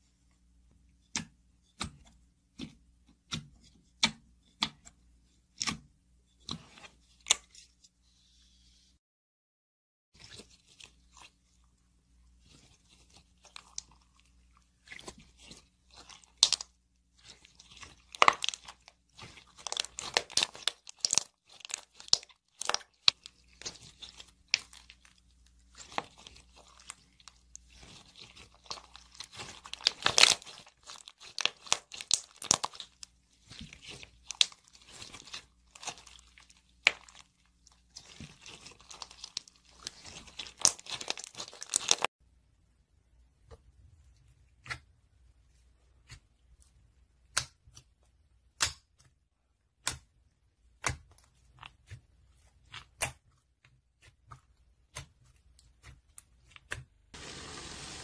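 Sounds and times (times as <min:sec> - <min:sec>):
beaded slime crackling and popping: 0:15.9 - 0:42.1.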